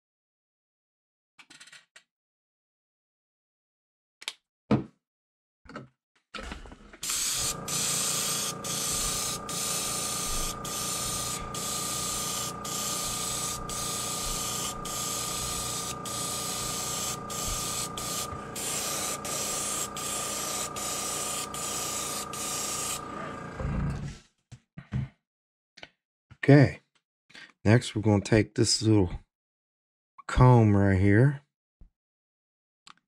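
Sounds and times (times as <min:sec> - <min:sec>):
airbrush spraying air hiss: 0:07.0 - 0:23.4.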